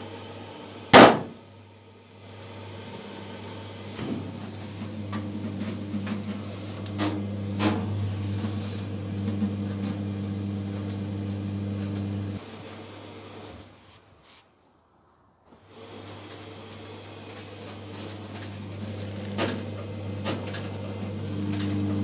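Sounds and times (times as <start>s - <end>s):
knocks inside dryer: 1.0s - 1.4s
dryer motor humming: 2.1s - 13.7s, 15.7s - 22.0s.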